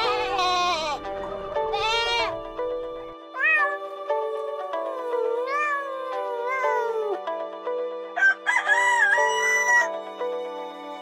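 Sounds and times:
goat bleating: 0.0s - 2.4s
background music: 0.0s - 11.0s
rooster crowing: 8.2s - 10.0s.

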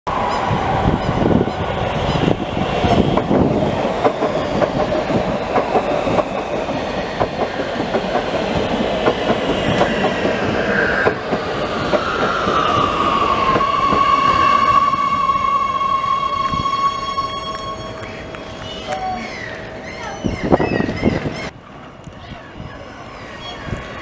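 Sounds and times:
train wheels clacking on rails: 0.2s - 15.6s
high whine sliding down: 9.7s - 18.6s.

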